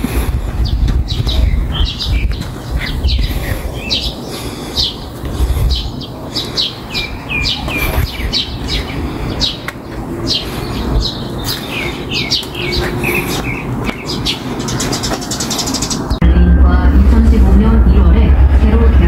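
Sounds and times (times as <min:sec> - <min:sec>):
songbirds chirping: 0:00.0 - 0:16.2
low background rumble: 0:15.8 - 0:19.0.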